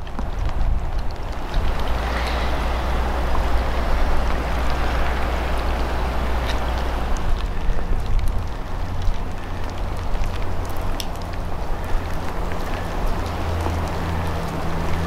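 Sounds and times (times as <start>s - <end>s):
river floodwater rushing: 0.0s - 15.0s.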